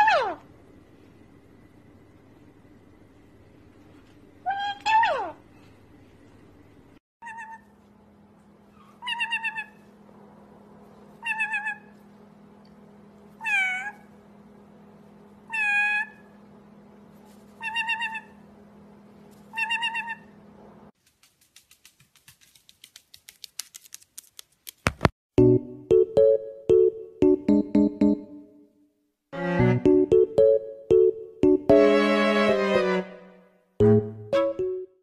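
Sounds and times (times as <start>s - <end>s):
parrot wavering calls: 0.0s - 0.4s, 4.5s - 5.4s, 7.2s - 7.7s, 8.7s - 9.9s, 11.2s - 12.0s, 13.4s - 14.0s, 15.5s - 16.4s, 17.6s - 18.4s, 19.5s - 20.4s.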